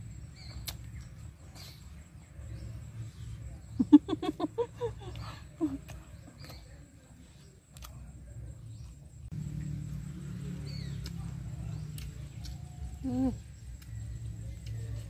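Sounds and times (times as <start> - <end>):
mouth clicks: 0.5 - 0.9.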